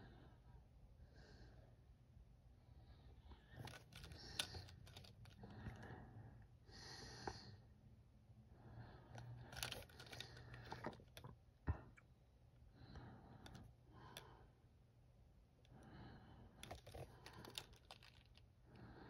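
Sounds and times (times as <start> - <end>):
soft rustles of toy handling: 3.1 - 5.8, 9.1 - 11.4, 16.6 - 18.6
small plastic clicks: 3.5 - 5.8, 9.5 - 11.3, 16.6 - 18.4.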